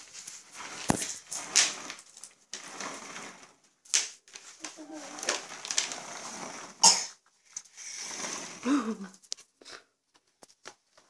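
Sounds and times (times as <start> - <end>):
child coughing: 6.8 - 7.2
breathy sounds: 7.7 - 10.0.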